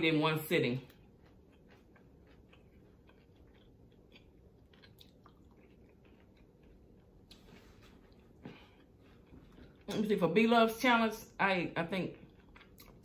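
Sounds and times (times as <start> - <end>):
faint chewing mouth sounds: 0.8 - 9.9, 12.2 - 13.0.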